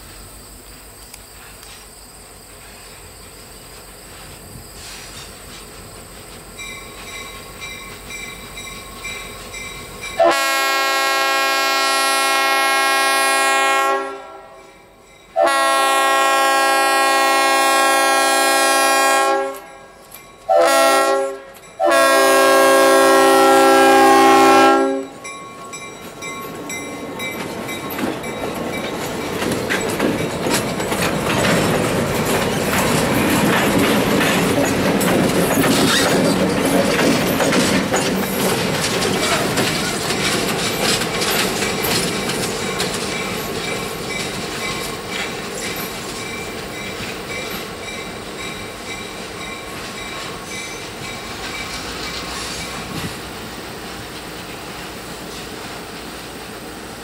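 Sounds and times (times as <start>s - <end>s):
train rumbling past: 0.0s - 57.0s
locomotive air horn blasts: 10.2s - 14.7s, 15.4s - 25.2s.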